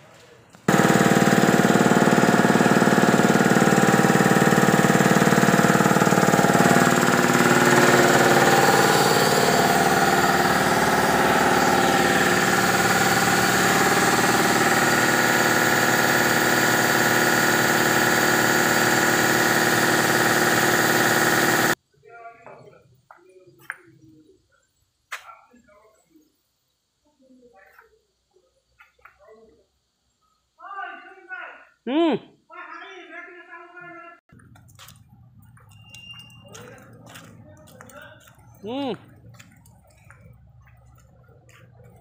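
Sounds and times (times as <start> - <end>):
air compressor running: 0.6 - 21.8, 34.3 - 42.0.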